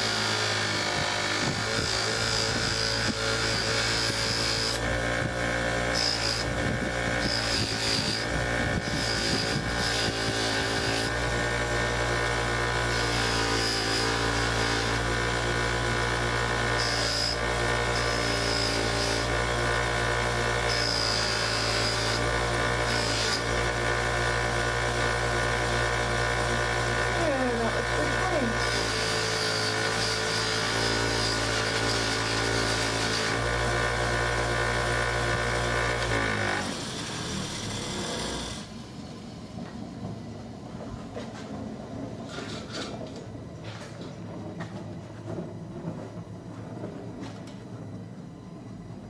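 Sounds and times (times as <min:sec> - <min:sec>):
high whine of polishing: 0:00.0 - 0:15.3, 0:26.8 - 0:33.6
bench buffer motor hum: 0:00.0 - 0:38.6.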